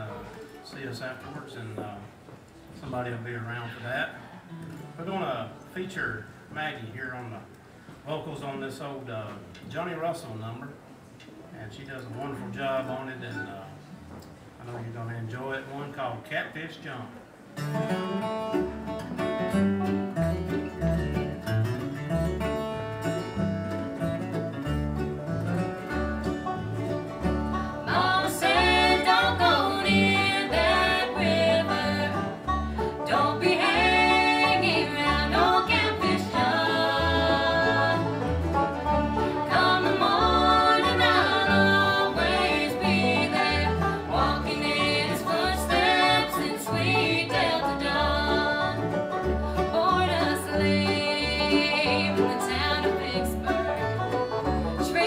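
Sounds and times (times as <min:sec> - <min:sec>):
bluegrass band playing: 0:00.0 - 0:16.0, 0:17.2 - 0:55.0
woman singing lead vocal: 0:27.8 - 0:32.4, 0:33.0 - 0:38.2, 0:39.4 - 0:48.9, 0:49.7 - 0:53.6.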